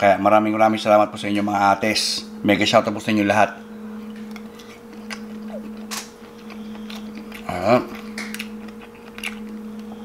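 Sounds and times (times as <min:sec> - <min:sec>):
steady low hum: 0:00.0 - 0:10.0
chewing with wet clicks: 0:04.0 - 0:10.0
person humming: 0:07.4 - 0:08.1.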